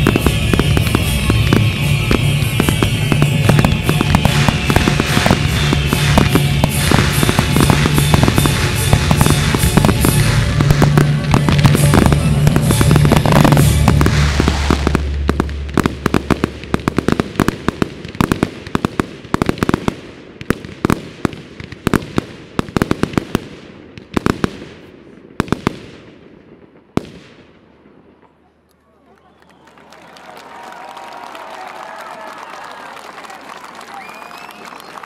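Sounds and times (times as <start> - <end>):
music: 0.0 - 16.9
fireworks bangs and crackles: 0.0 - 28.5.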